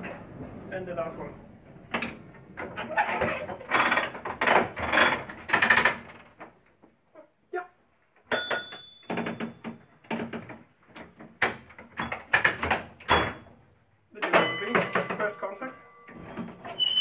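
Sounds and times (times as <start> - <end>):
tram controls clicking and rattling: 1.7 - 3.0
tram bell ringing: 14.4 - 16.2.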